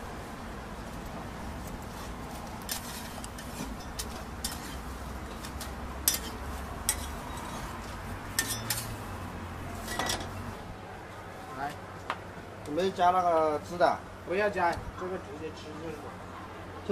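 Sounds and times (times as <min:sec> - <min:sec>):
metal spatula scraping griddle: 0:01.8 - 0:09.1, 0:09.7 - 0:10.5.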